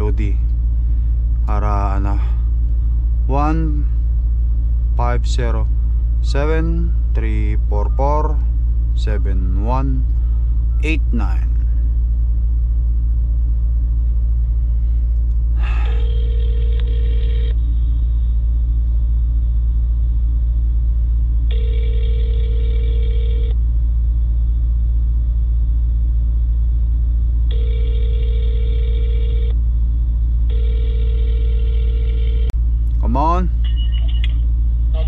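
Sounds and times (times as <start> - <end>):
steady low rumble: 0.0 - 35.0
phone ringback tone: 16.0 - 17.6, 21.5 - 23.5, 27.5 - 29.5, 30.5 - 32.5.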